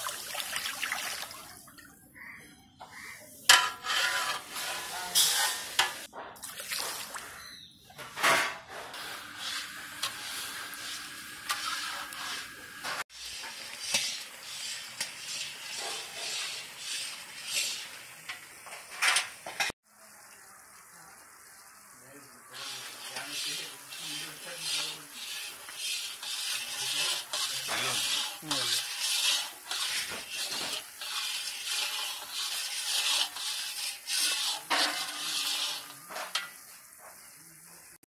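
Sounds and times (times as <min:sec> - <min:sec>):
metal ladle scraping a wok: 0:02.2 - 0:06.1, 0:08.2 - 0:19.7, 0:22.5 - 0:37.2
syrup hissing and bubbling: 0:21.6 - 0:37.6.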